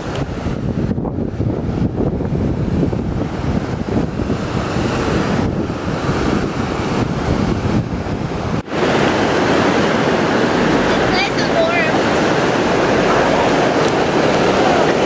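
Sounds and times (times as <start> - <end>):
wind buffeting microphone: 0.0 - 15.0
river rapids rushing over rocks: 8.7 - 15.0.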